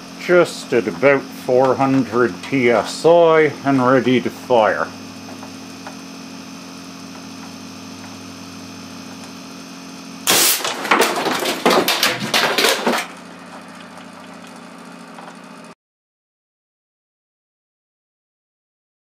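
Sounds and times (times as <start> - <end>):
steady hum: 0.0 - 15.8
air cannon blast: 10.2 - 10.7
phone smashing with sharp cracks: 10.3 - 13.1.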